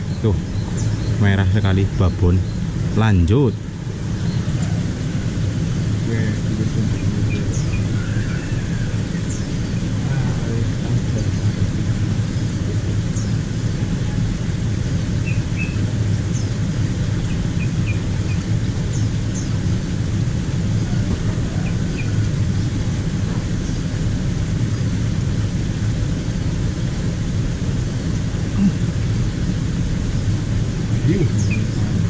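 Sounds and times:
low rumble: 0.0s - 32.0s
high bird chirps: 6.9s - 10.0s, 15.2s - 16.6s, 31.3s - 31.8s.

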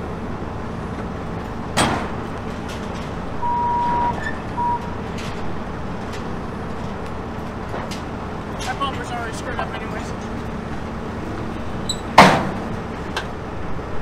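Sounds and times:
wheel loader engine idling: 0.0s - 14.0s
high electronic beeps: 3.4s - 4.9s.

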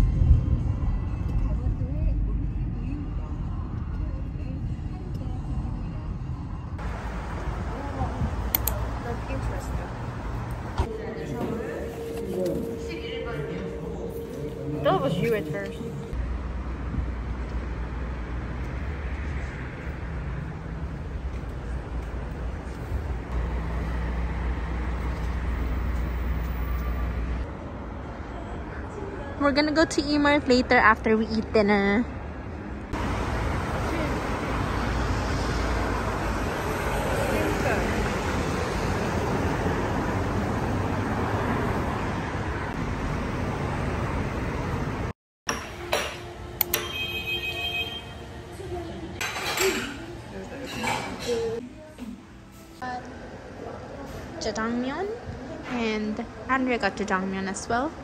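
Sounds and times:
passing cars: 0.0s - 45.1s
road traffic rumble: 0.0s - 58.0s.

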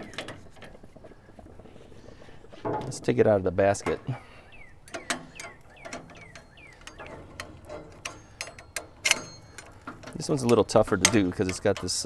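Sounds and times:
sharp metallic clack: 4.9s - 12.0s.

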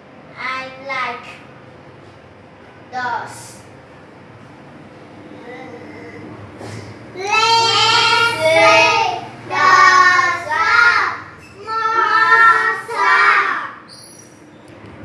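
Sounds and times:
children singing: 7.2s - 13.8s.

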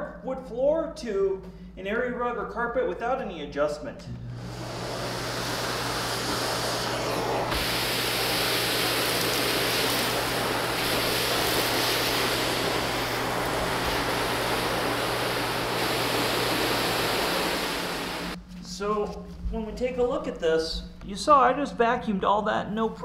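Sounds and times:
vacuum air rushing: 4.1s - 18.4s
vacuum cleaner motor hum: 4.1s - 18.4s
vacuum sucking up debris: 4.1s - 18.4s.

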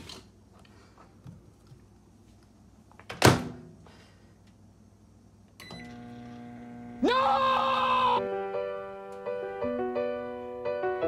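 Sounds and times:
microwave electrical hum: 0.0s - 8.2s
microwave beep: 5.6s - 6.4s.

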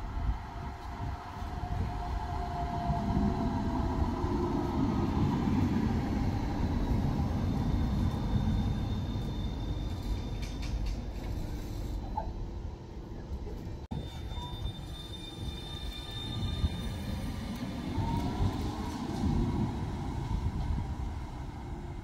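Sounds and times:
tram wheels rumbling on rails: 0.0s - 22.0s
tram whine: 0.0s - 22.0s
thin high squeal: 13.9s - 18.0s.

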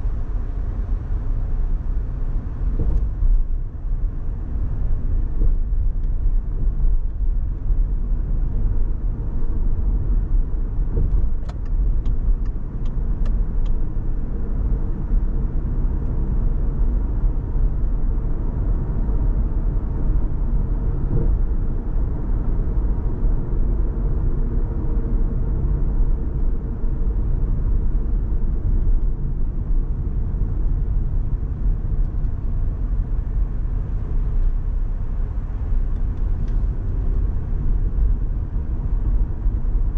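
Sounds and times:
road and engine rumble: 0.0s - 39.9s
light ticks: 11.0s - 13.8s.

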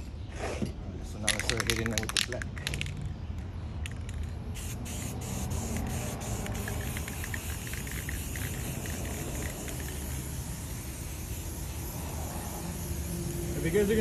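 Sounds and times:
spray paint can hissing: 3.7s - 14.0s.

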